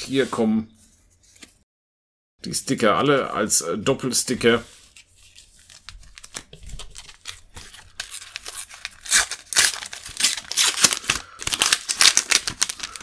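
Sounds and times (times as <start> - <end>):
wrapper crinkling and tearing: 5.2 - 13.0.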